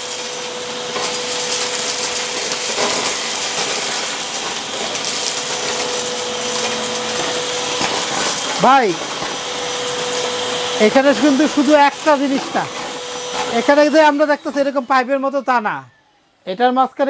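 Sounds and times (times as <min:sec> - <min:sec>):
debris rattling up vacuum tube: 0:00.0 - 0:13.6
vacuum cleaner whine: 0:00.0 - 0:17.0.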